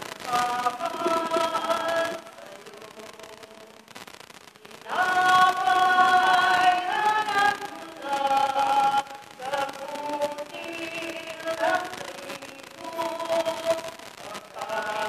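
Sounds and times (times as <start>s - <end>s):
choir singing a hymn: 0.3s - 2.7s, 4.8s - 15.0s.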